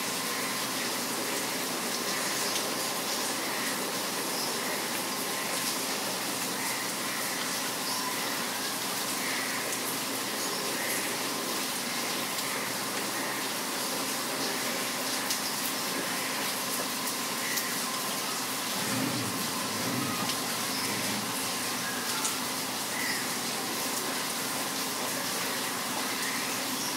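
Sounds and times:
steady rain falling: 0.0 - 26.9
faint bird chirps: 7.2 - 9.5.

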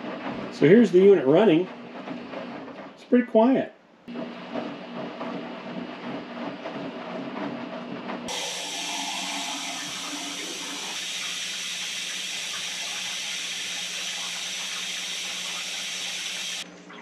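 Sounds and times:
washing machine hum: 0.0 - 17.0
rushing water hiss: 8.3 - 16.6.

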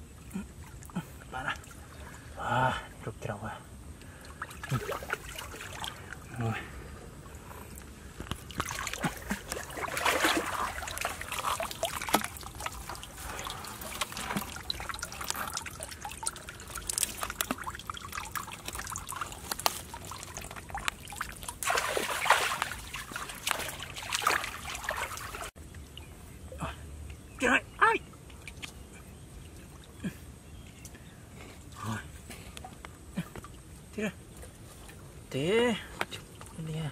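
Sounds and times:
river water splashing: 4.1 - 6.4, 7.2 - 25.6.

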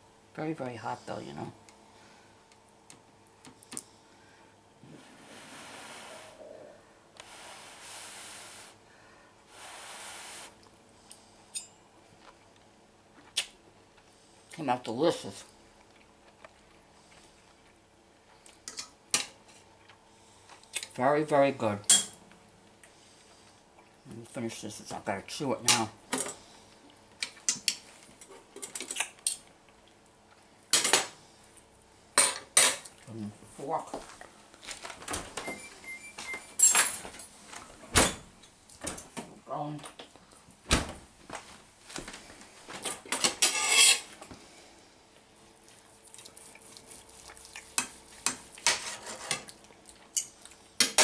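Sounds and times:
person blowing on food: 4.8 - 6.8, 9.5 - 10.6
metal utensils clinking on plate: 43.2 - 44.0.

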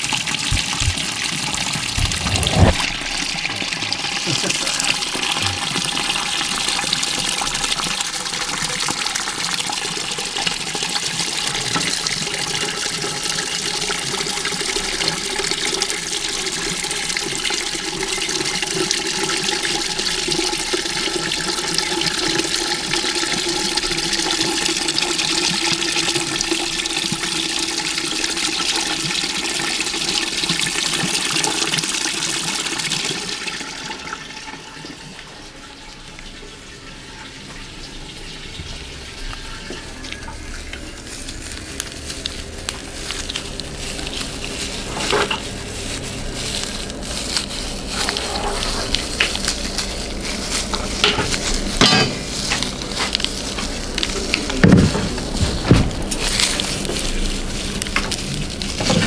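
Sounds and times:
liquid pouring into bucket: 0.0 - 36.6, 37.7 - 59.0.

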